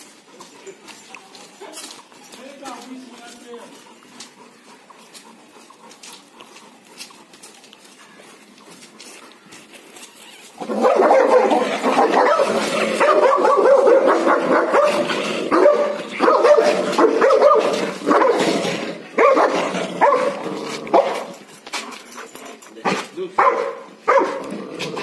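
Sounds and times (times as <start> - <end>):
dogs barking: 10.5 - 21.5, 22.8 - 24.6.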